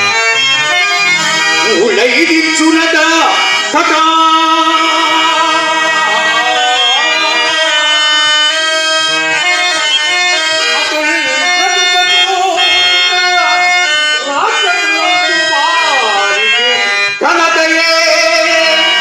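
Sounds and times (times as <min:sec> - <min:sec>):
harmonium: 0:00.0 - 0:19.0
person singing ornamented verse: 0:01.7 - 0:09.4, 0:10.5 - 0:15.5.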